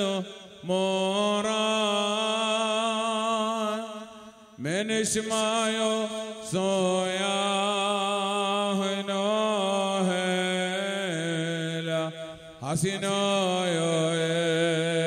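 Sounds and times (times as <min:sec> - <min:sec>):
man chanting a prayer: 0:00.0 - 0:15.0.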